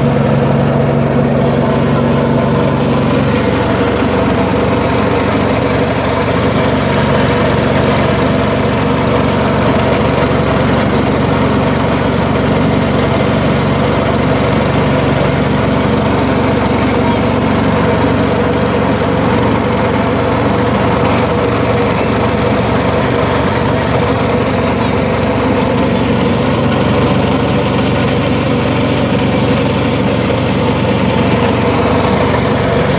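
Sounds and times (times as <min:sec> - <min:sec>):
small boat engine running: 0:00.0 - 0:32.9.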